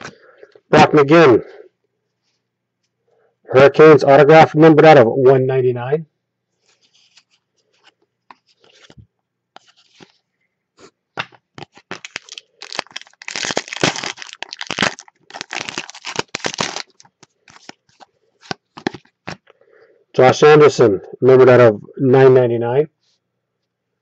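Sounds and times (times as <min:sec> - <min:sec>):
wrapper crinkling and ripping: 0:11.2 - 0:19.5.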